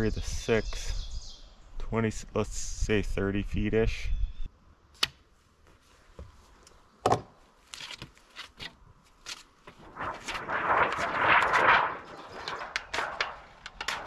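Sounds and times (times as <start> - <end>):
metal sheet crinkling: 7.7 - 14.0.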